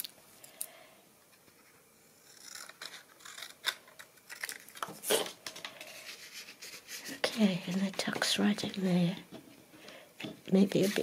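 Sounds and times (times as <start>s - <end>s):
scissors cutting paper: 2.2s - 5.3s
paper crackle: 2.4s - 8.0s.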